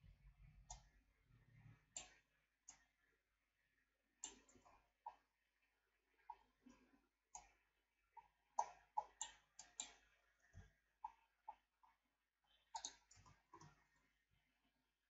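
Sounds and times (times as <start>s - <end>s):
mouse and keyboard clicks: 12.8s - 13.8s.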